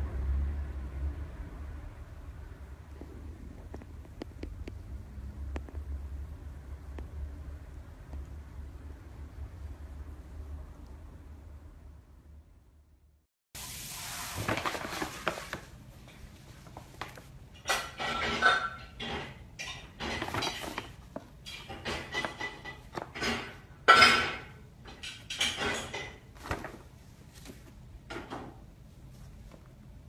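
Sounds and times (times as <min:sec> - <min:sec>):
paper bag rustling: 0:13.6 - 0:17.4, 0:20.0 - 0:21.4, 0:26.3 - 0:27.8.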